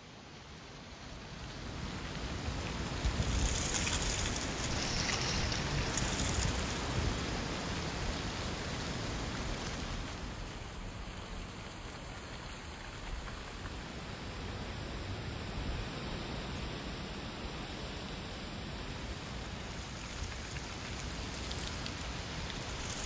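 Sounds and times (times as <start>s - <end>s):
wind blowing through trees: 0.0s - 23.0s
dry leaves rustling: 1.9s - 10.8s, 19.6s - 23.0s.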